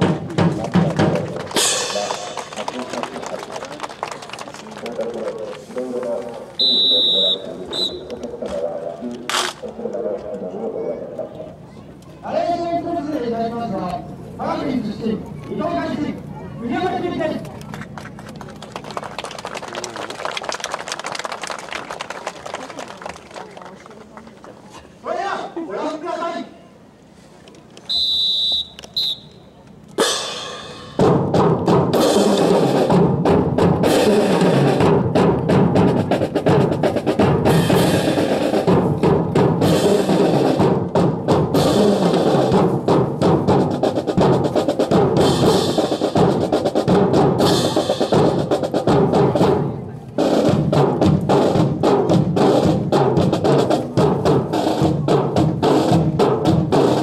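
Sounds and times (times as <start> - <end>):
snare and bass drums marching cadence: 0.0 - 10.1, 30.0 - 57.0.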